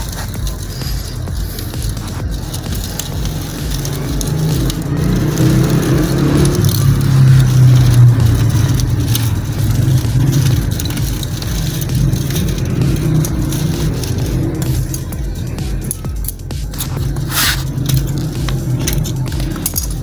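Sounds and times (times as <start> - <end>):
vehicle engine droning: 0.0 - 20.0.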